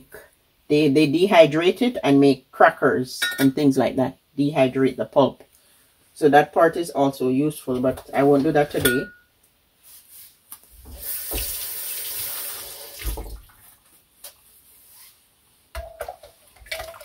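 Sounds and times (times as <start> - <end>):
kitchen tap running: 10.8 - 13.6, 16.6 - 17.0.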